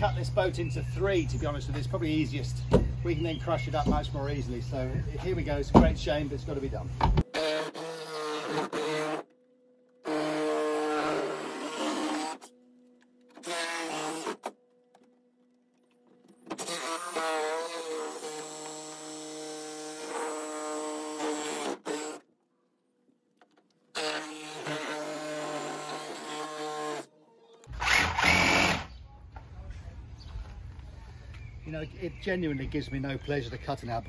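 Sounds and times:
power saw cutting wood: 0:07.2 - 0:09.4, 0:10.0 - 0:12.6, 0:13.2 - 0:14.6, 0:16.4 - 0:22.3, 0:23.9 - 0:27.1, 0:27.7 - 0:28.9.

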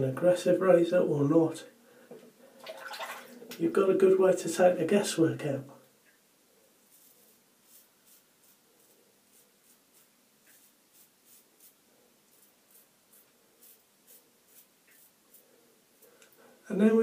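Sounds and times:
razor scraping stubble: 0:06.9 - 0:15.4.

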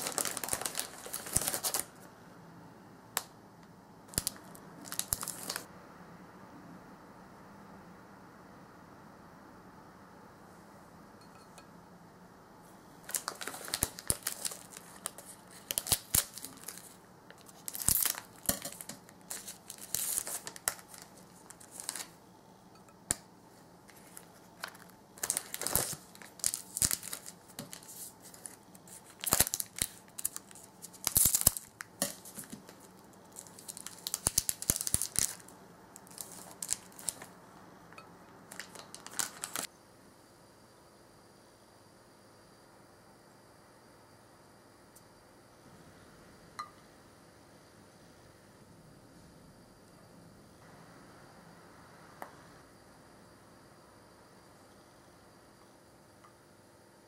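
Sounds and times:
plastic snack bag crinkling: 0:00.0 - 0:02.0, 0:04.1 - 0:05.7, 0:13.0 - 0:22.2, 0:23.9 - 0:37.4, 0:38.5 - 0:39.7.

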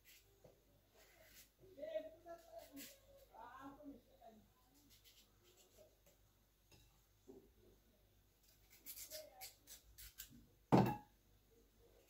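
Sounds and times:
knife cutting raw potato: 0:08.4 - 0:10.4.

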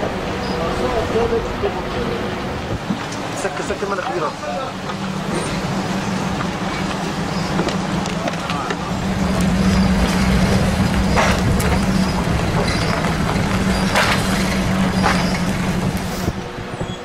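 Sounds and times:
road rumble: 0:00.0 - 0:17.0
vehicle engine humming: 0:00.0 - 0:17.0
sharp knocks: 0:09.4 - 0:16.4.

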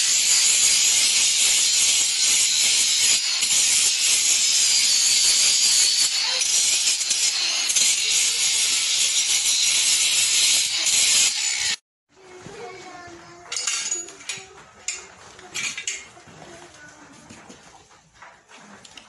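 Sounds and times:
forge burner hissing: 0:00.0 - 0:11.8
faint metallic clinks: 0:13.5 - 0:16.1.

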